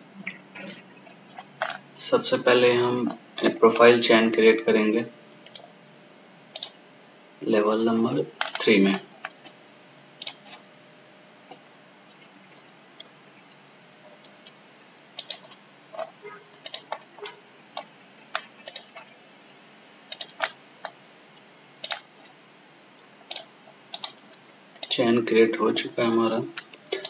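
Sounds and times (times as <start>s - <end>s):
faint background hiss: 0.0s - 27.0s
mouse buttons clicking: 5.4s - 5.7s, 6.6s - 6.8s, 10.2s - 10.6s, 14.2s - 14.5s, 15.2s - 19.1s, 20.1s - 21.0s, 21.8s - 22.1s, 23.3s - 25.0s.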